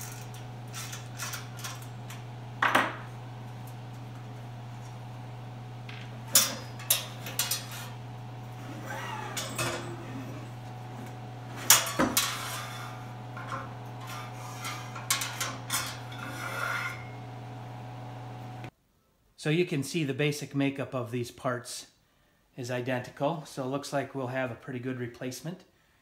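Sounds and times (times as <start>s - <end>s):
metal clinks and scrapes: 11.7s - 17.2s.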